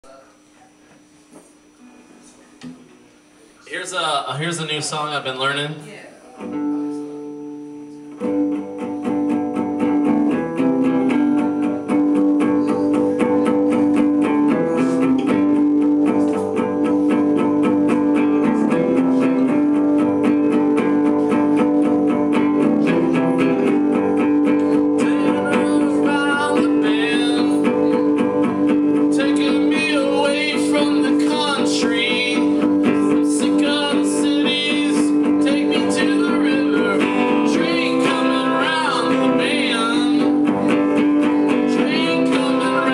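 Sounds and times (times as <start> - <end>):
acoustic guitar strumming: 3.9 - 42.9
man singing: 16.4 - 42.9.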